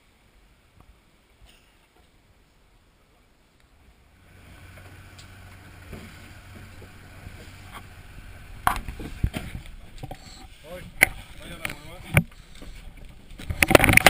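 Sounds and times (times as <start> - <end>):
boat motor humming: 3.8 - 14.0.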